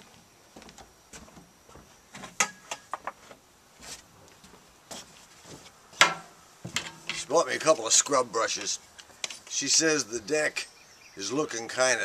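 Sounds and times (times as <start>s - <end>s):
brush poles knocking and clicking: 6.0s - 7.4s.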